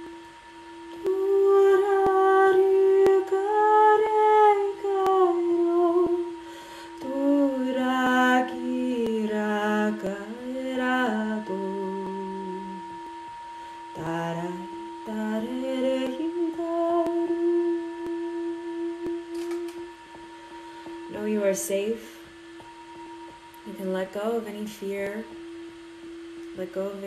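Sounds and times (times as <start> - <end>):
singing bowl ringing: 0.0 - 27.0
woman singing wordless notes: 0.0 - 27.0.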